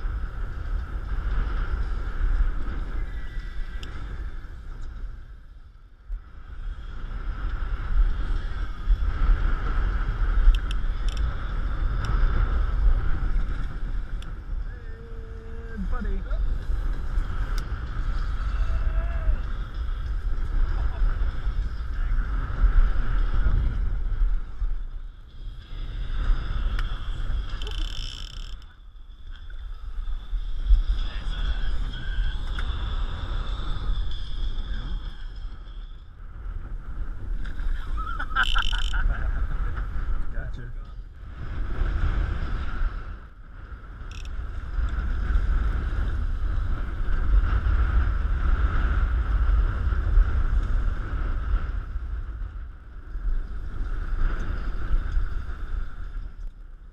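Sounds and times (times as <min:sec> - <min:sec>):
wind buffeting microphone: 0:00.0 - 0:56.9.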